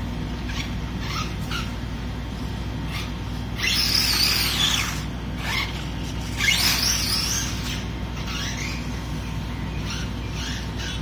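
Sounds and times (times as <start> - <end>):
electric motor whining: 3.6 - 9.2.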